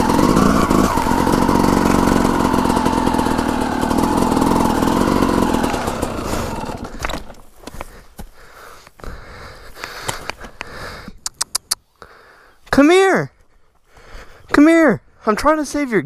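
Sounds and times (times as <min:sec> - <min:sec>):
dirt bike engine running: 0:00.0 - 0:11.0
brush and twigs cracking: 0:05.5 - 0:10.8.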